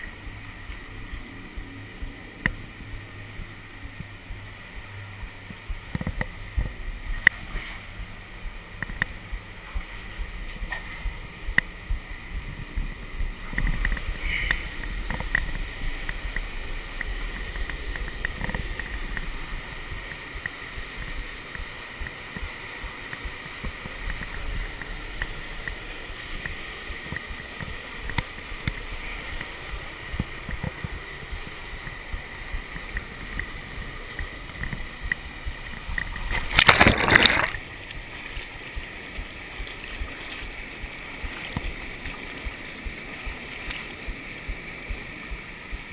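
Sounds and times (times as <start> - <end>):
muffled river rapids rushing: 0.0 - 45.9
loud water splashing: 34.6 - 45.9.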